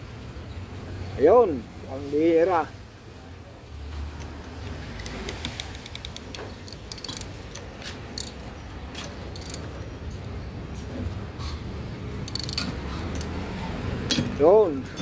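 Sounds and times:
ratchet wrench clicking: 4.9 - 8.4, 9.3 - 9.7, 12.2 - 13.4.

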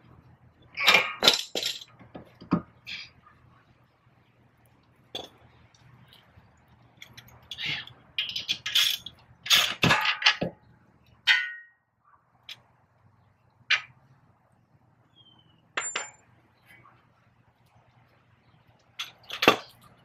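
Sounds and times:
metal tools clinking and scraping: 0.8 - 3.1, 7.0 - 10.5, 11.3 - 11.8, 15.8 - 16.2, 19.0 - 20.0
ringing metal clank: 11.3 - 11.8, 15.8 - 16.2.

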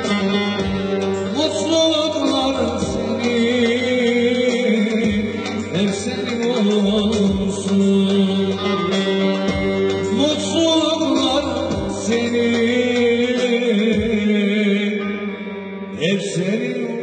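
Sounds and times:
electric lute playing: 0.0 - 17.0
keyboard accompaniment: 0.0 - 17.0
man singing: 0.0 - 17.0.

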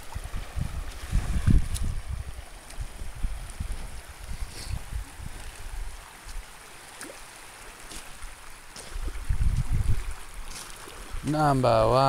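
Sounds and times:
water lapping over pebbles: 0.0 - 12.0.

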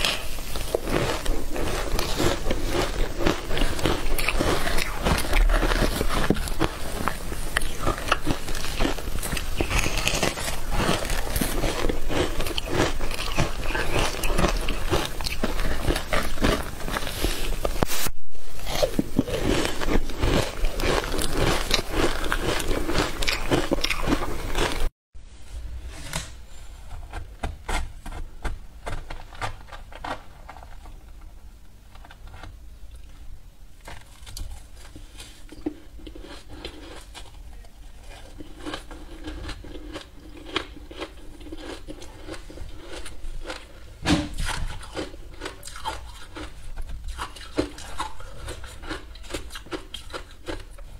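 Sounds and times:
crunching and chewing ice: 0.0 - 17.9, 18.6 - 24.9, 33.8 - 50.9.

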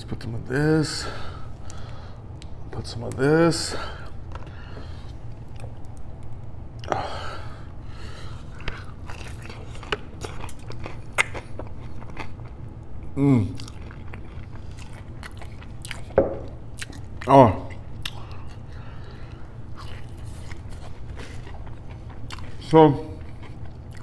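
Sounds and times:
crunchy chewing: 8.1 - 24.0.

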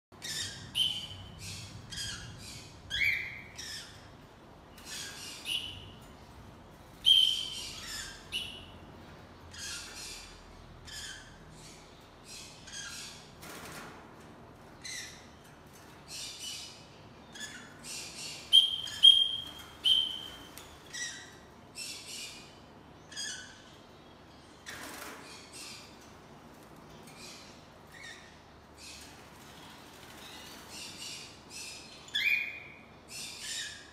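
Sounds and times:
parrot chirping calls: 7.0 - 8.8, 16.3 - 23.9.

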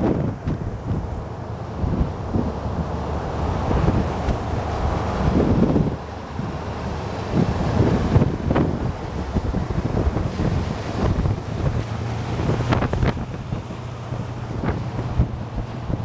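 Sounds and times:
wind pops: 0.0 - 1.2, 3.6 - 6.0, 7.3 - 13.7
road and engine drone: 0.0 - 16.0
wind buffeting microphone: 0.0 - 16.0.

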